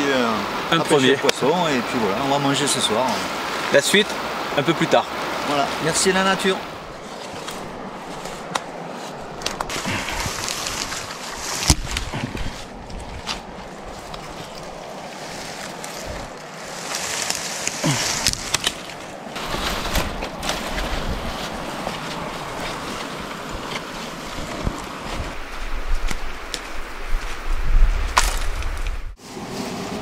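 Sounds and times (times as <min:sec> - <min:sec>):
dry branches rustling: 0:00.0 - 0:30.0
twigs snapping: 0:07.0 - 0:27.4, 0:28.0 - 0:29.0.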